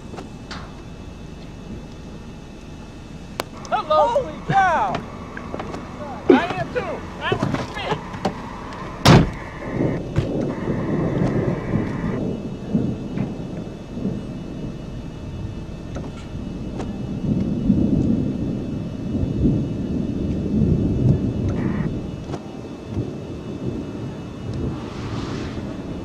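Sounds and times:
gusting wind: 22.5s - 26.0s
thunder rumble: 23.5s - 26.0s.

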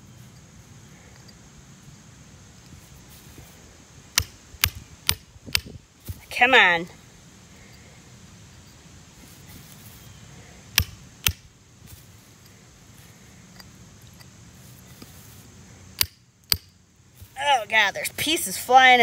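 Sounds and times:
chisel striking rock: 4.1s - 5.8s, 10.8s - 11.5s, 16.0s - 16.7s.

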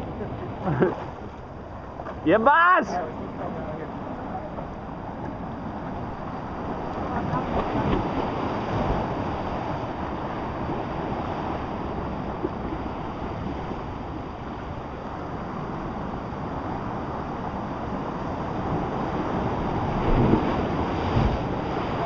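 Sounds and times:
sea surf rushing through rocky channel: 0.0s - 22.0s.

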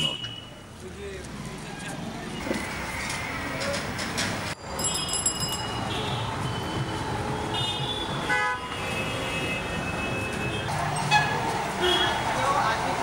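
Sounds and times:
busy street traffic: 0.0s - 13.0s
vehicle horns tooting: 7.5s - 12.3s.

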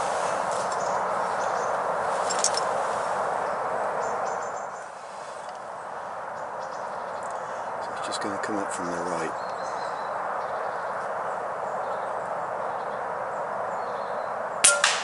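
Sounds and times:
steady hiss: 0.0s - 10.0s
faint bird chirps: 6.3s - 11.1s.

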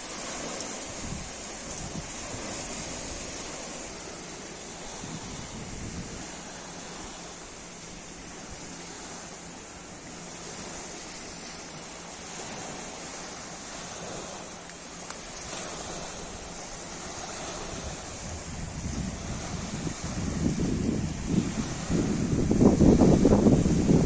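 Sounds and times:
wind on microphone: 0.0s - 9.2s, 15.2s - 24.0s
small waves washing on shore: 0.0s - 24.0s.

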